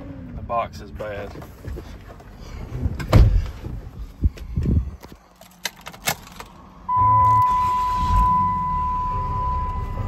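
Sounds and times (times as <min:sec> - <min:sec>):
high electronic warning tone: 0:06.9 - 0:10.0.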